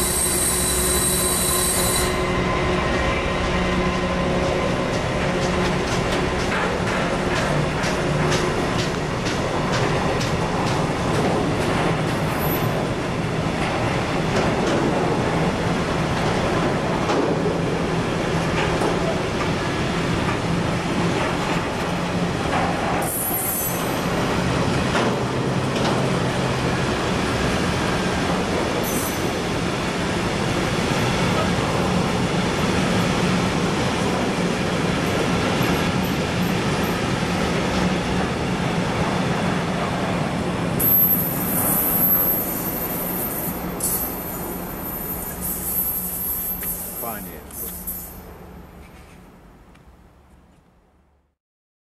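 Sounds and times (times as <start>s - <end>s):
high wheel squeals: 0.0s - 2.6s, 40.8s - 48.4s
train wheels rumbling on rail: 0.0s - 50.5s.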